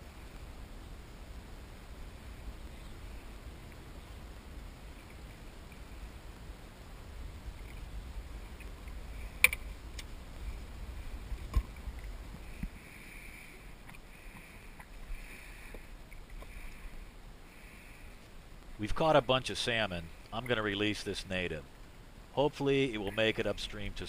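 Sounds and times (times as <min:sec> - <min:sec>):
water lapping around kayak: 0:02.0 - 0:18.5.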